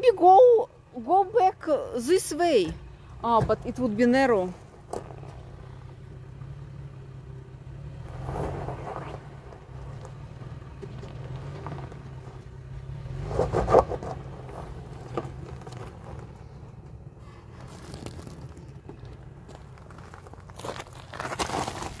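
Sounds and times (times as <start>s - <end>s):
engine running at low revs: 2.7s - 20.6s
tyres crunching on rock and gravel: 7.9s - 22.0s.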